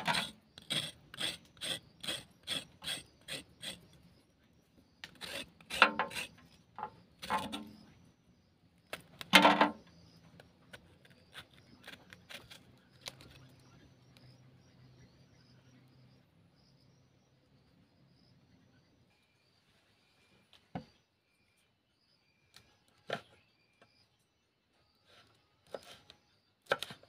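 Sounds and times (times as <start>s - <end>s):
knife scraping gourd: 0.0s - 4.1s, 5.0s - 7.9s, 8.9s - 13.6s, 25.0s - 27.0s.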